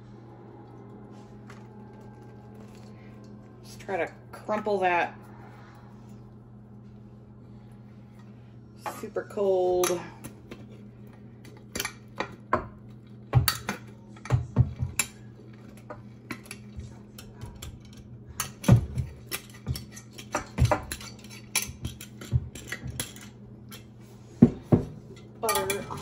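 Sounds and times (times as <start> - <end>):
utensils knocking against mixing bowl: 11.7 - 15.2, 15.8 - 23.8.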